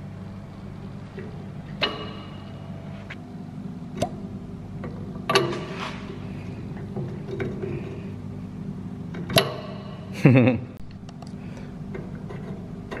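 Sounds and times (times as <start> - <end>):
low steady hum: 0.0 - 13.0
metal pin knocking in hub: 1.2 - 2.7, 9.1 - 10.1.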